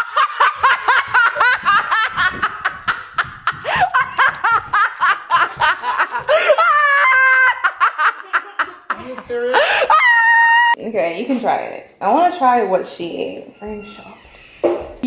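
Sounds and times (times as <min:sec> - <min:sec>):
people laughing and shrieking: 0:00.0 - 0:08.9, 0:09.5 - 0:10.8.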